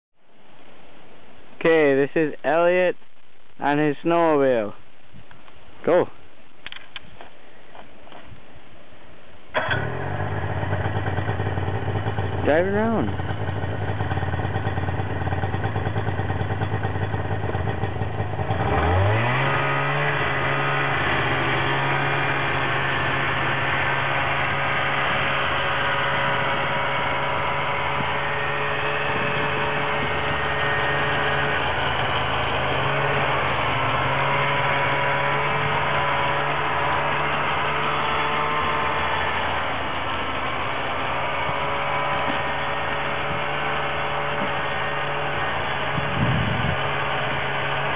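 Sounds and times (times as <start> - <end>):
snowmobile engine revving: 9.6 - 47.9.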